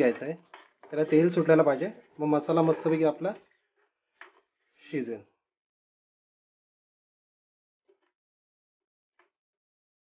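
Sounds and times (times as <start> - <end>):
spatula scraping metal pan: 0.0 - 3.8.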